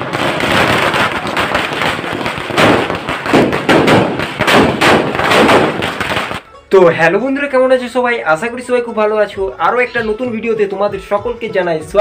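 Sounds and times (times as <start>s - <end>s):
firecrackers crackling bangs: 0.0s - 6.4s.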